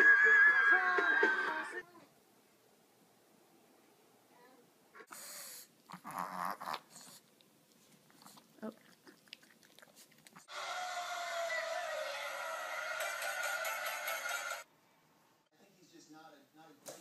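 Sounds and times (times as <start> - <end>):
small dog vocalizing: 5.0 - 7.2.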